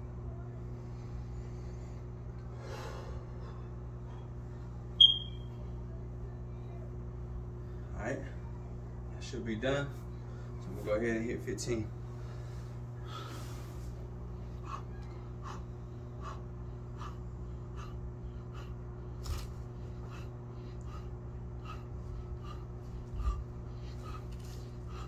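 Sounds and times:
steady low hum: 0.0 - 25.0
man's sharp breaths: 12.1 - 25.0.

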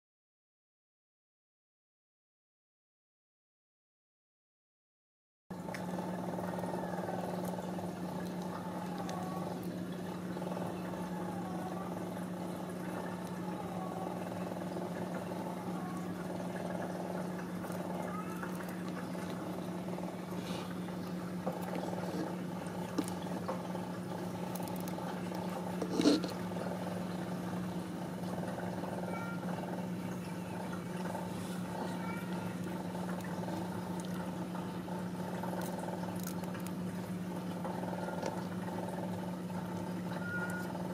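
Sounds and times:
cat purring: 6.6 - 21.0.

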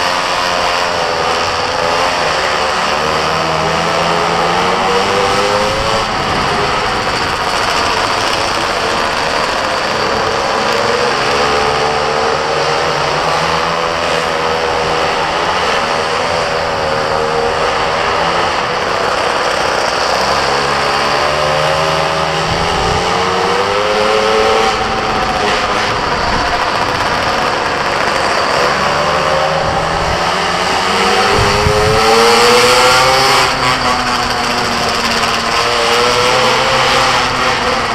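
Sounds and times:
small motorbike engine revving: 0.0 - 37.9.

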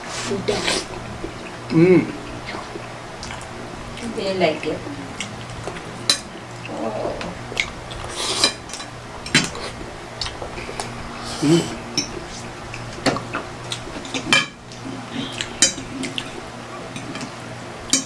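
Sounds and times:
slurping noodles: 7.9 - 8.6
forks clinking on glass plates: 15.2 - 17.3.

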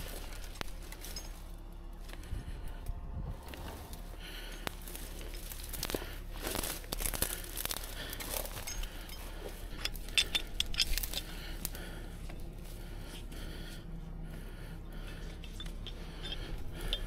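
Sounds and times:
twigs snapping: 0.0 - 1.2, 2.8 - 12.4
dry brush crackling and rustling: 0.0 - 13.8.

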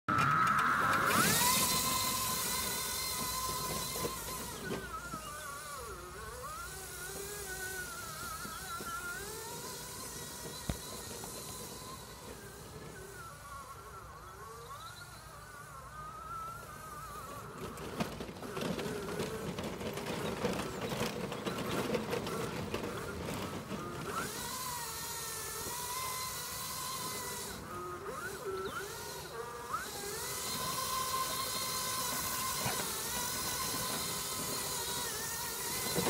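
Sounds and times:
electric scooter motor whining: 0.0 - 36.0
crackling clicking noise: 10.6 - 10.9.

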